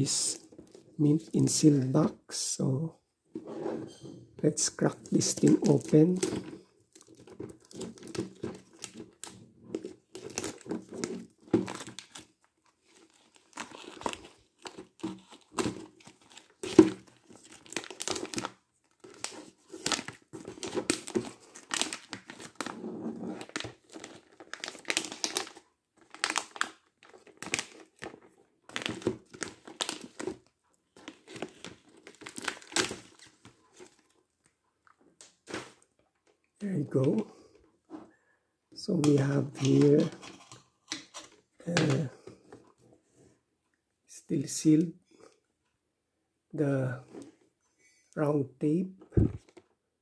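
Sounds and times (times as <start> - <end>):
plastic film crinkling: 4.8 - 22.7, 23.4 - 30.4, 31.0 - 34.1, 39.0 - 42.0.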